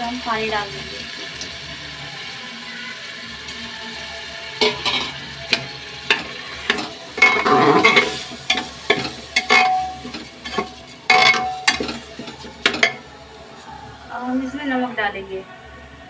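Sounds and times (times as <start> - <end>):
faint sizzle: 0.0 - 16.0
metal spoon scraping pot: 6.1 - 13.0.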